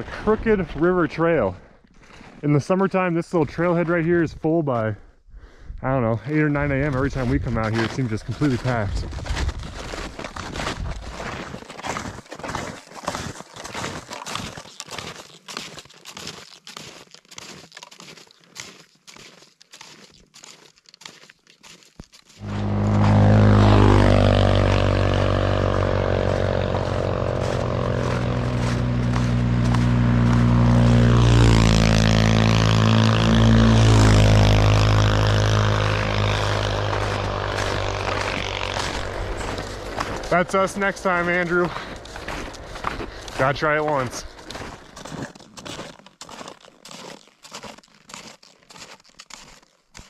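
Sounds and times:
snowmobile engine running: 0.0 - 1.5, 6.3 - 14.6, 22.4 - 46.0
snowshoe footsteps crunching snow: 0.0 - 5.0, 6.3 - 50.0.

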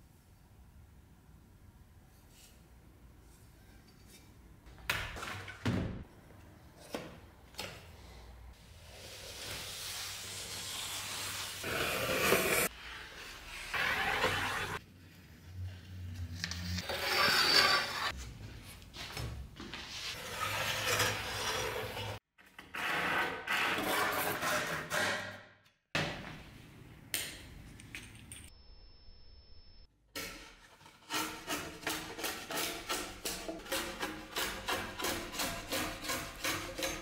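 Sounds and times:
hand tools rasping on wood: 31.1 - 37.0.

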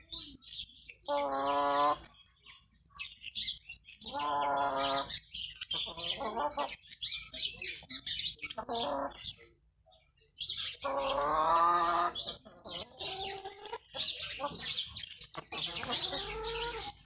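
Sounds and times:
small birds chirping: 0.0 - 17.0
chicken calling: 1.0 - 2.1, 4.0 - 5.2, 10.8 - 14.7, 15.4 - 17.0.

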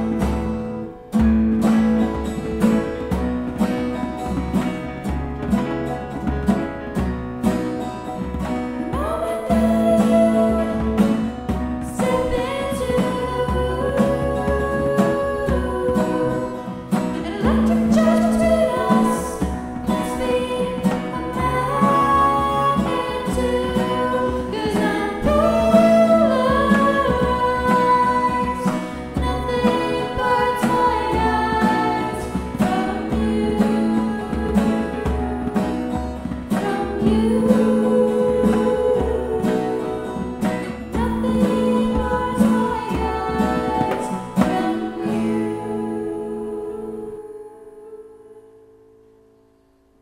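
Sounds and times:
band playing with singing: 7.4 - 47.2.

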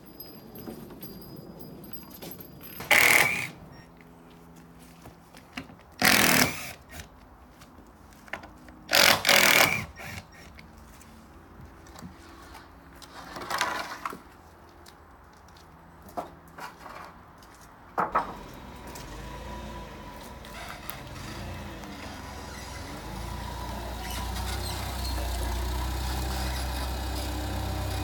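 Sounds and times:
power drill bursts: 2.8 - 3.6, 6.0 - 7.0, 8.9 - 10.5.

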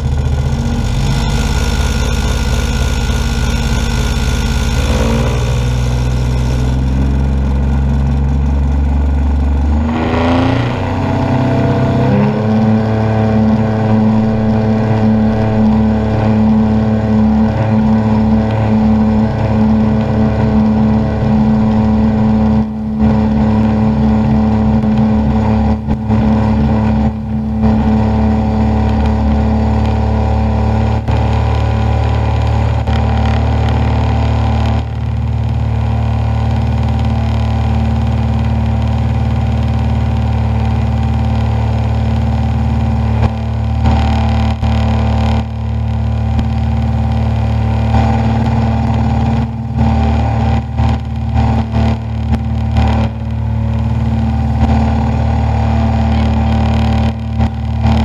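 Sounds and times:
aircraft engine and propeller droning: 0.0 - 58.0.

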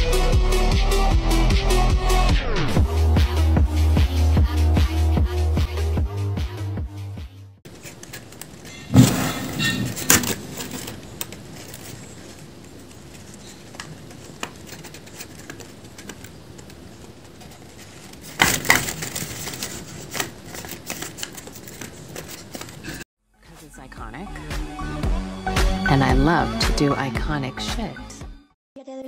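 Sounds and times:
paper clicks and rustles: 7.7 - 23.0.

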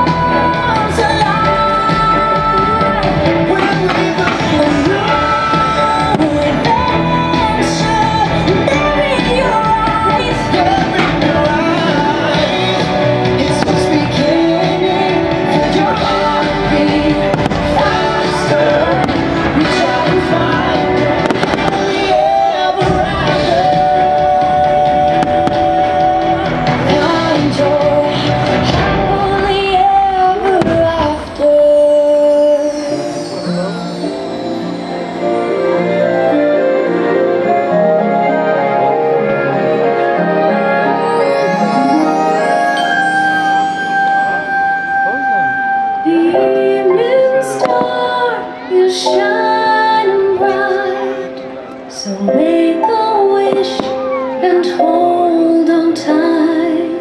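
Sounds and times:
music over outdoor loudspeakers: 0.0 - 57.0
fireworks bangs and pops: 17.3 - 18.0, 21.2 - 22.2.

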